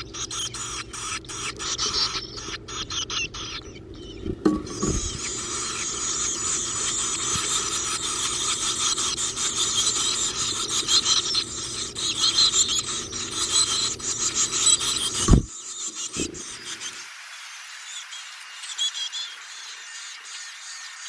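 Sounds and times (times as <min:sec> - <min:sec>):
nestlings begging calls: 0:00.0 - 0:21.0
sharp thump: 0:04.3 - 0:05.2.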